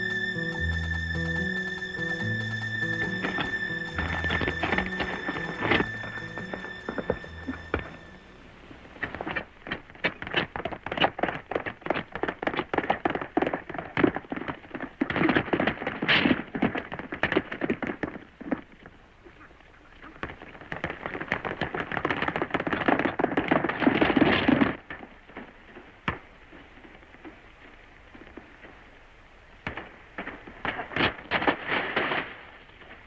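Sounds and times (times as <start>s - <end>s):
horse hoofbeats galloping: 0.0s - 8.3s, 9.0s - 18.9s.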